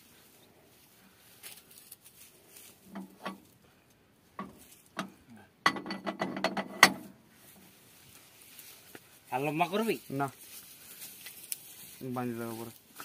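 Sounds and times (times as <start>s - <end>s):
rope knocking on metal hitch: 4.4s - 7.1s.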